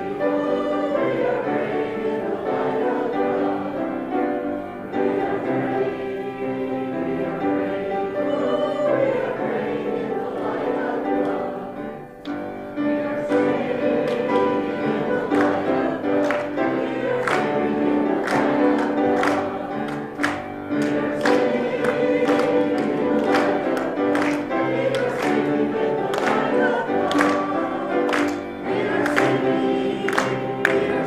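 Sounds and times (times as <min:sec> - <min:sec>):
congregation singing a hymn: 0:00.0 - 0:31.0
instrumental accompaniment: 0:00.0 - 0:31.0
sharp hand clap on beat: 0:16.2 - 0:16.6, 0:17.2 - 0:29.4, 0:30.0 - 0:31.0.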